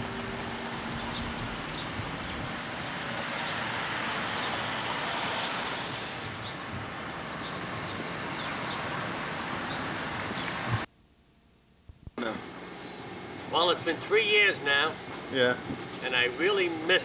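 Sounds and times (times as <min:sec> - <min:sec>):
steady traffic hiss: 0:00.0 - 0:10.9, 0:12.1 - 0:17.0
vehicle passing: 0:00.0 - 0:10.9.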